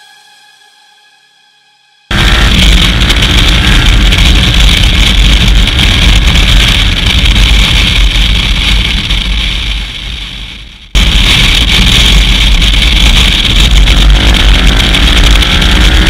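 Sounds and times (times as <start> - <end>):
motorcycle engine at speed: 2.1 - 16.0
wind roar: 2.1 - 16.0.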